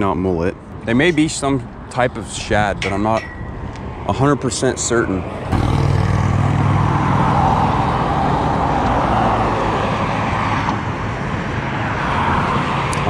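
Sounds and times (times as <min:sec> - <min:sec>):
car tyres rushing by: 0:05.1 - 0:13.0.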